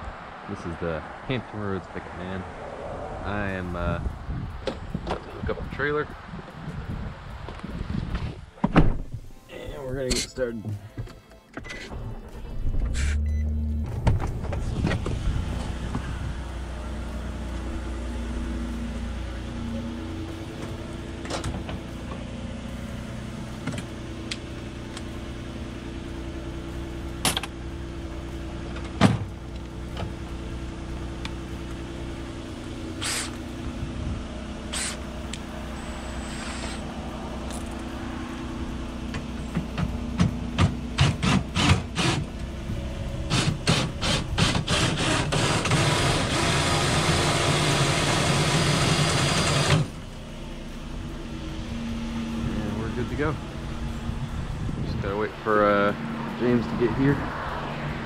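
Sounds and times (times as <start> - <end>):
steady low hum: 49.9 - 58.0.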